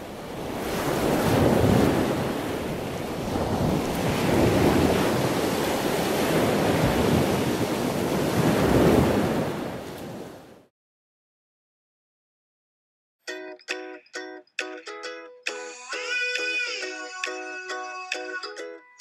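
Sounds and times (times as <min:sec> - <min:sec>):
ocean waves rushing in: 0:00.0 - 0:10.7.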